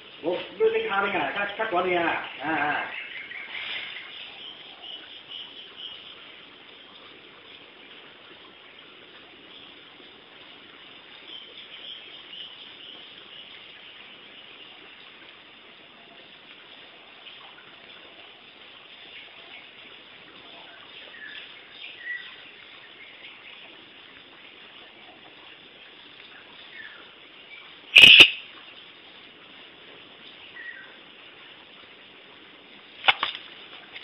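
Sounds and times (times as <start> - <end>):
steady background hiss: 0.0 - 34.0
short high chirps: 28.0 - 28.4.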